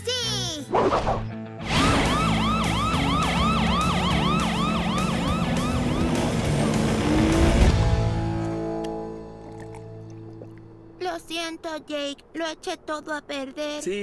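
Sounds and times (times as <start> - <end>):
cartoon police siren yelping: 1.8 - 6.4.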